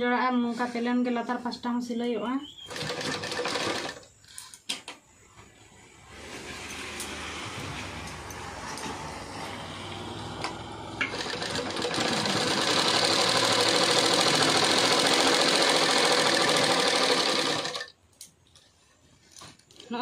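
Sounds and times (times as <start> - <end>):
sewing machine stitching: 2.6 - 4.0, 10.4 - 17.9.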